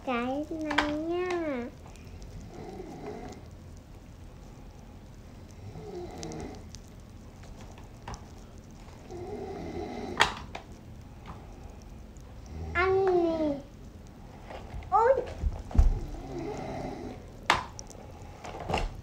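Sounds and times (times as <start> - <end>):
plastic toys and candy handled: 0.0 - 2.5, 6.3 - 9.2, 12.9 - 16.4
small clicks: 0.1 - 19.0.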